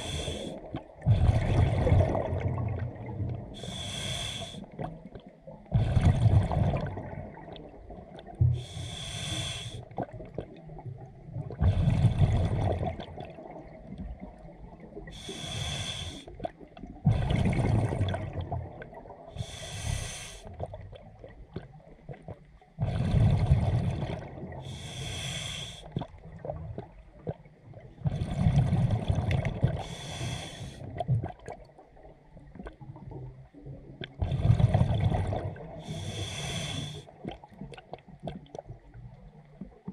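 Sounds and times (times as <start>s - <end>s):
hissing regulator inhalation: 3.6s - 4.7s, 8.7s - 9.8s, 15.2s - 16.2s, 24.7s - 25.9s, 35.9s - 37.0s.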